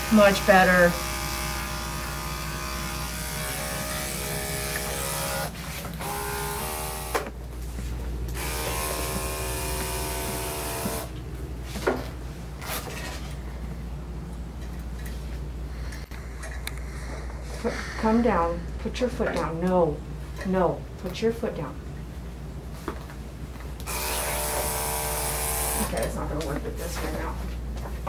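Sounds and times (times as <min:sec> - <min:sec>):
electric clippers buzzing: 0:00.0 - 0:07.5, 0:08.2 - 0:11.2, 0:23.8 - 0:26.0.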